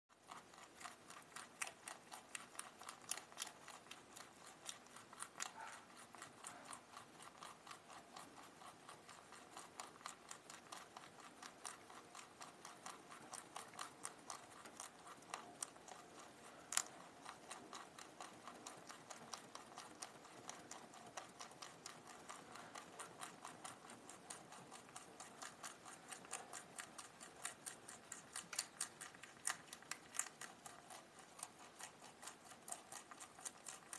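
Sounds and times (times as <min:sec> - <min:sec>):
rabbit chewing plant stem: 0:00.1 - 0:33.9.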